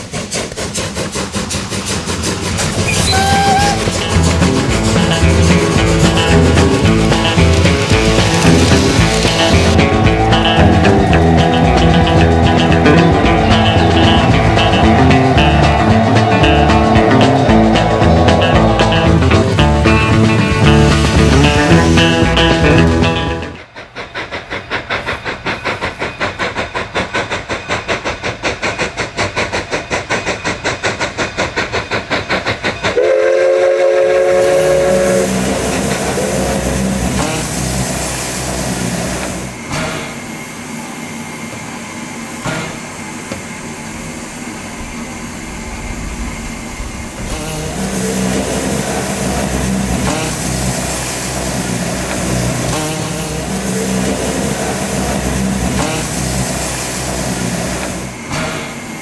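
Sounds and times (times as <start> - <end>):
steam locomotive exhaust beating: 0.0 - 59.0
train rumbling: 0.0 - 59.0
steam whistle blasts: 2.9 - 4.2, 32.9 - 37.7.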